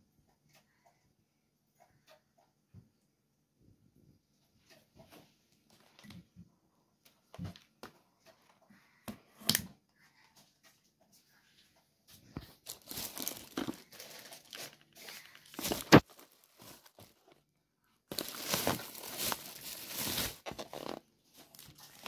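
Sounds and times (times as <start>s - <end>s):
plastic bag rustling: 12.3s - 17.5s, 18.1s - 22.0s.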